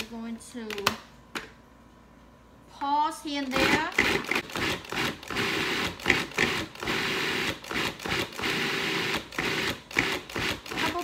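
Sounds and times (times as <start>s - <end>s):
food processor motor pulsing: 3.5s - 11.0s.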